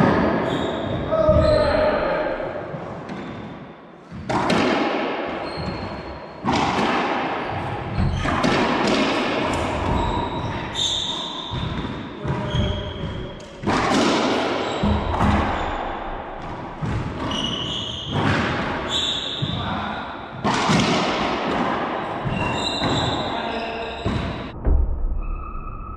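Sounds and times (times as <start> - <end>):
sneakers squeaking on hardwood: 0.3 - 1.9, 5.4 - 6.4, 7.5 - 8.6, 9.5 - 13.5, 14.4 - 16.0, 16.8 - 20.5, 22.2 - 24.5
ball smacking racquets and walls: 2.7 - 23.3, 24.0 - 24.6.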